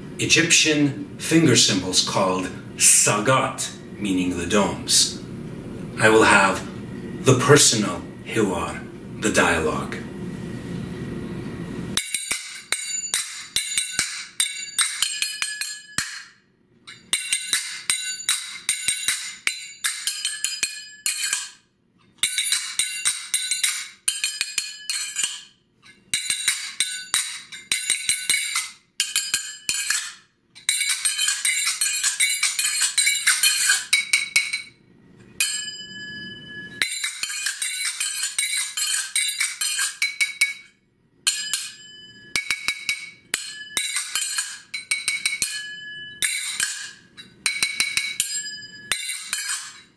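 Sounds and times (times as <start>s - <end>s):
finger cymbals clinking: 12.0s - 21.6s, 22.2s - 49.9s.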